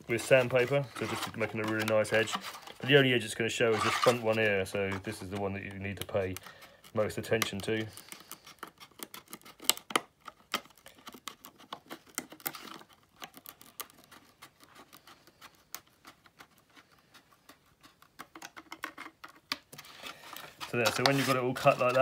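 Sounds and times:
shears snipping plastic sheet: 0.2 - 15.5, 20.1 - 22.0.

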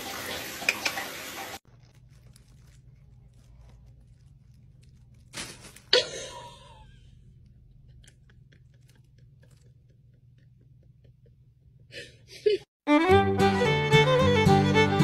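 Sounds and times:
fabric tunnel rustling: 1.6 - 6.8
loud crunch: 1.7 - 6.4.

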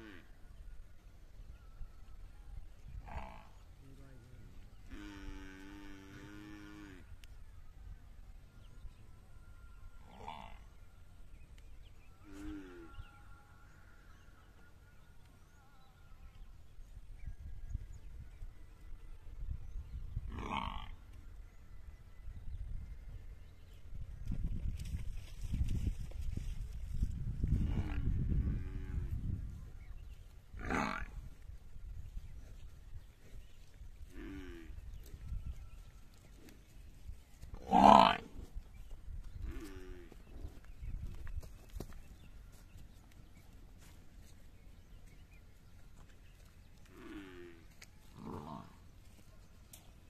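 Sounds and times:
farm animal calling: 3.0 - 7.2, 20.2 - 21.2, 29.9 - 31.3, 37.5 - 38.6, 42.1 - 49.4.

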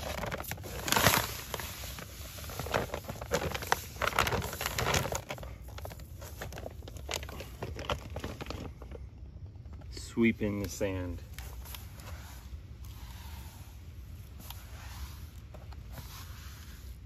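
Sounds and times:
sack crinkling: 0.0 - 10.1
sand pouring onto pavers: 12.1 - 17.0.

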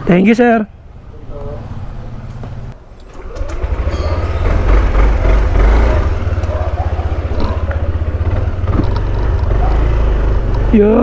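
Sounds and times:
scooter engine pulling away: 2.0 - 11.0.

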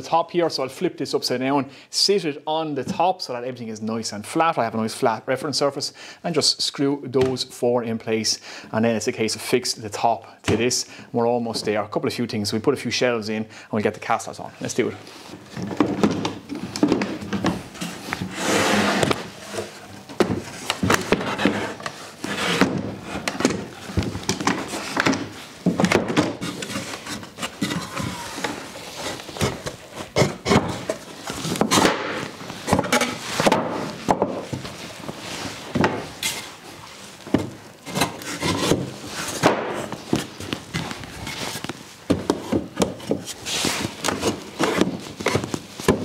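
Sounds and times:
wood rubbing against wood: 15.0 - 46.0
wooden knocks and clunks: 15.4 - 18.3, 18.9 - 28.6, 29.4 - 34.8, 35.7 - 36.2, 37.2 - 41.1, 42.1 - 43.3, 44.0 - 46.0.

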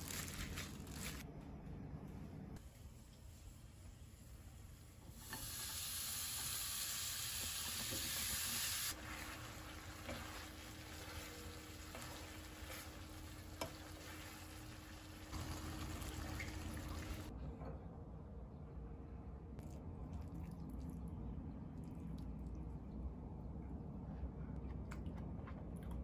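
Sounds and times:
food sizzling in a frying pan: 5.1 - 17.3.

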